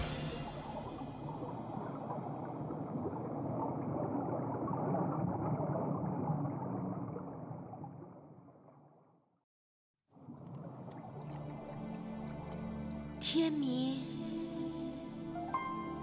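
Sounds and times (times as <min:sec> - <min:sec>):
churning water rushing: 0:00.0 - 0:07.8, 0:10.1 - 0:13.5.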